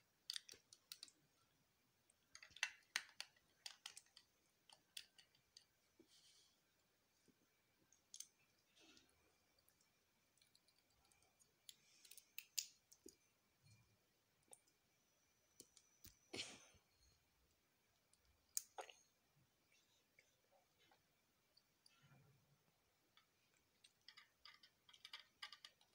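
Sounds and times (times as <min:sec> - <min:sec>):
plastic bricks clicking together: 0:00.2 - 0:01.2, 0:02.3 - 0:05.7, 0:23.8 - 0:25.9.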